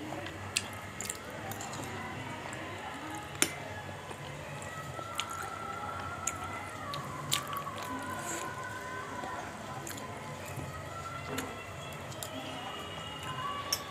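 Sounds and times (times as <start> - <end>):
wet chewing sounds: 0.5 - 2.0, 3.4 - 10.6.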